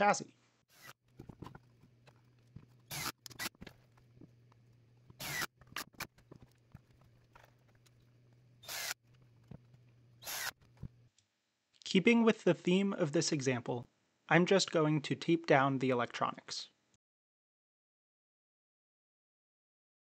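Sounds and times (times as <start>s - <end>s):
cordless drill driving screws: 0.7s - 1.0s, 2.8s - 3.7s, 5.2s - 5.9s, 8.6s - 9.0s, 10.2s - 10.6s.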